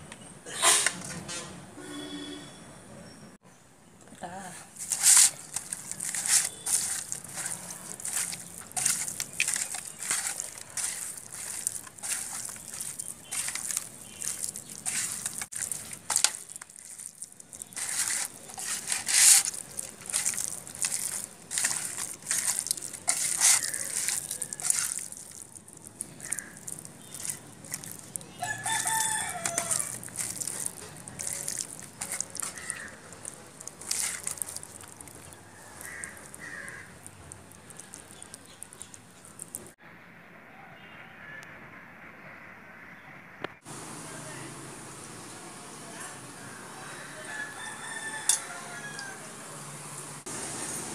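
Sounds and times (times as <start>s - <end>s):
hands squelching fish in bowl: 4.7s - 39.8s
rooster crowing: 28.4s - 30.0s, 40.5s - 41.6s, 46.8s - 49.6s.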